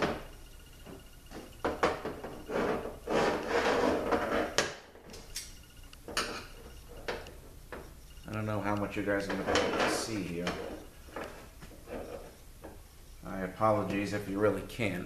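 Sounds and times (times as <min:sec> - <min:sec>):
scraping and rubbing: 0:01.9 - 0:04.9, 0:09.0 - 0:12.4.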